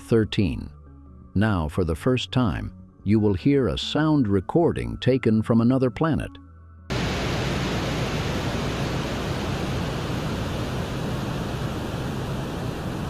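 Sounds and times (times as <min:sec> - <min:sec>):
steady rushing noise: 0:06.9 - 0:13.0.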